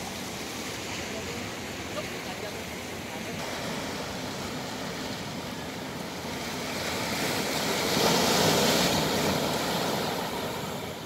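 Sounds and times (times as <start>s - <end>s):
sea waves washing over rocks: 0.0s - 11.0s.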